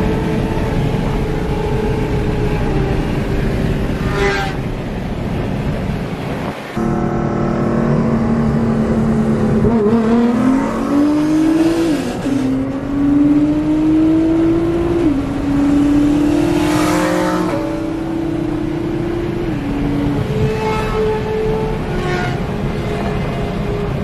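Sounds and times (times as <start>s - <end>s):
car engine accelerating: 6.8s - 21.2s.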